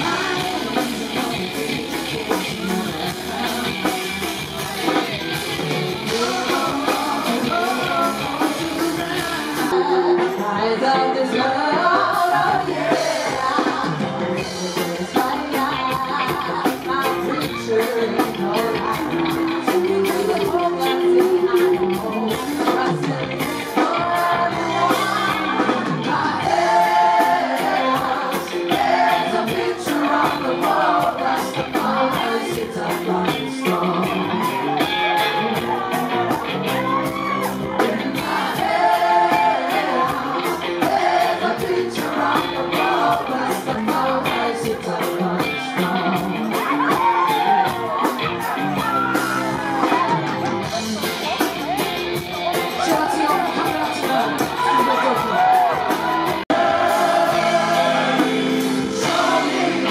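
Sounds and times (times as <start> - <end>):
woman singing: 0.0 - 5.2, 6.0 - 51.8
live rock band playing: 0.0 - 59.9.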